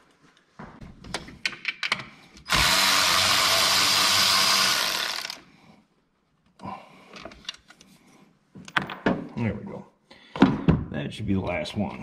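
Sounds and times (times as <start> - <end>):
cordless ratchet running: 2.5 - 5.4.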